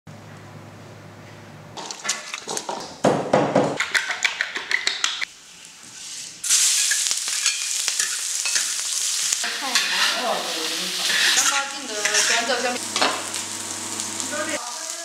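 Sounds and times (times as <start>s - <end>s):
food sizzling in hot oil: 5.3s - 15.0s.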